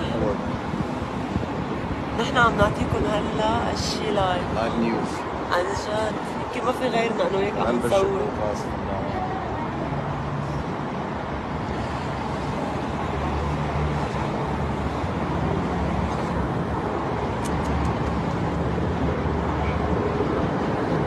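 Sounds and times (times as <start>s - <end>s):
road traffic: 0.0s - 21.0s.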